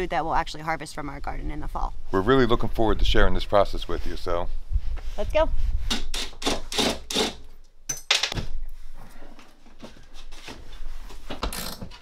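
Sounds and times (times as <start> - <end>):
rubbing and scraping: 8.8 - 12.0.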